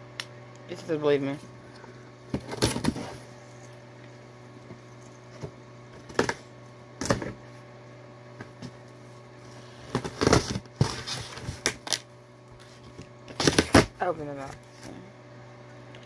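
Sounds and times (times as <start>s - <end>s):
steady low hum: 0.0s - 16.0s
cardboard and tape rustling: 9.8s - 15.0s.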